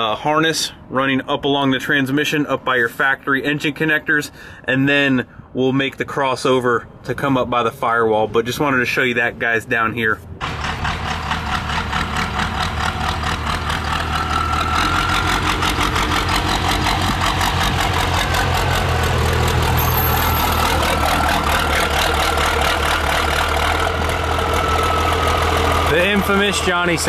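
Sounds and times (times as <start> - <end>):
pickup truck engine idling: 10.4 - 27.0.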